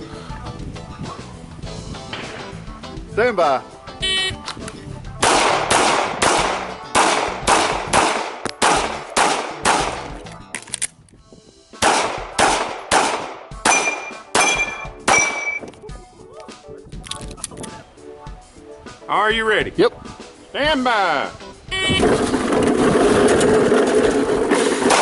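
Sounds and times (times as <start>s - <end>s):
pistol shots: 5.2s - 10.2s, 11.8s - 15.6s
metallic ring: 13.7s - 15.6s.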